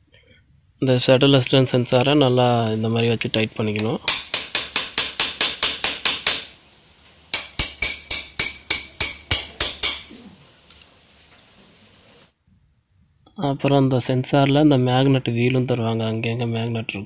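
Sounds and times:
rapid metal-on-metal taps: 3.8 - 6.5.

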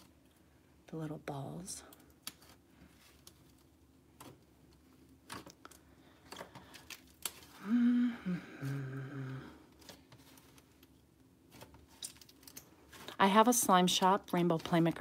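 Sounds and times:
person humming: 7.6 - 9.7.

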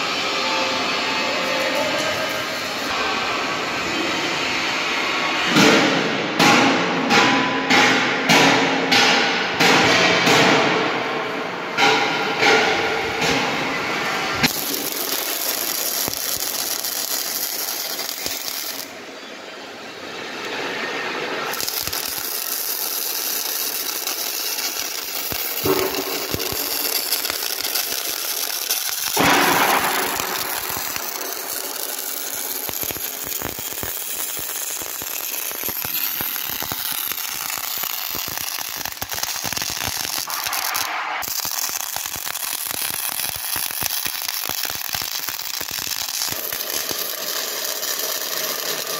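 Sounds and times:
welding arc crackling and sizzling: 0.0 - 6.1, 7.1 - 19.1, 20.4 - 48.9.

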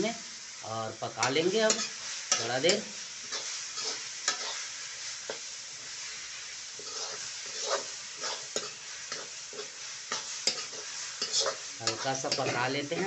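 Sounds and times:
greens sizzling in hot oil: 0.0 - 13.0
metal spatula scraping pan: 1.6 - 5.5, 6.7 - 13.0.

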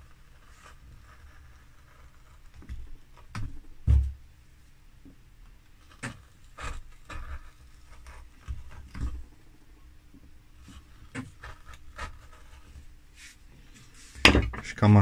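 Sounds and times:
chisel cutting into wood: 5.8 - 9.2, 10.6 - 12.8.

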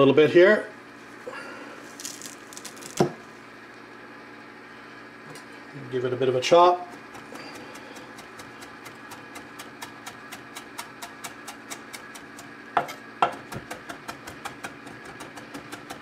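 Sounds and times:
knife chopping on wooden board: 6.8 - 16.0.

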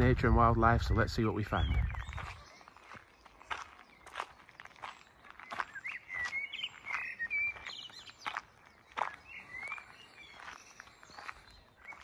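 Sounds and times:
footsteps on gravel: 0.0 - 12.0.

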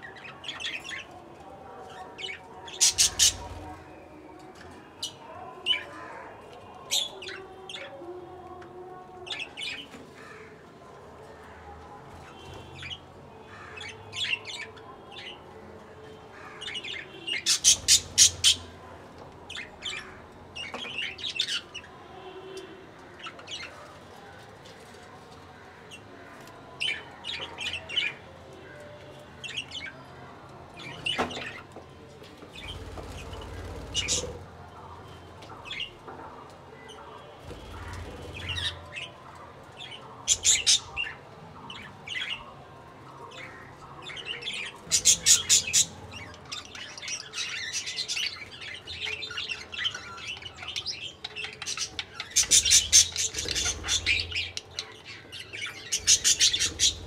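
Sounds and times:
budgerigars chirping and squawking: 2.8 - 3.7, 17.3 - 18.7, 32.7 - 34.4, 40.3 - 41.2, 44.6 - 57.0.

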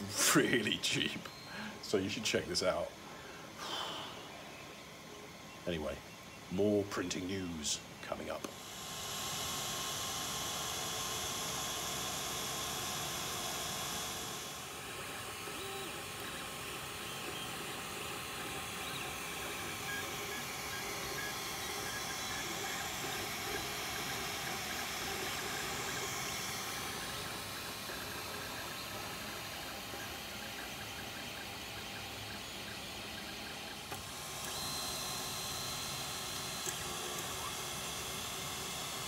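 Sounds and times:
cooling fans hissing: 0.0 - 39.0
faint stepper motor tones: 0.0 - 39.0.

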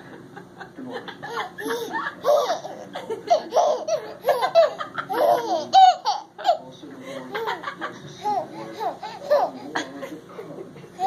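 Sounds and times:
baby laughing: 1.2 - 6.7, 7.3 - 10.0.

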